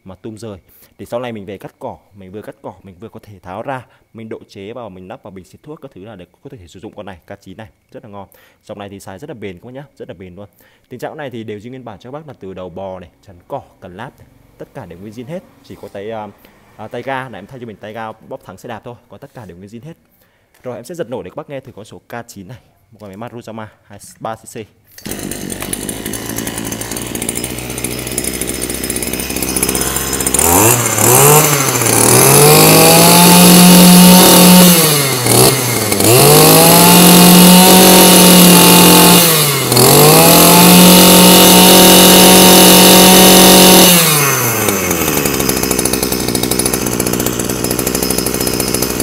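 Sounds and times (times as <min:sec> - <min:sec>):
brush cutter engine revving: 0:14.2 - 0:18.4, 0:24.9 - 0:49.0.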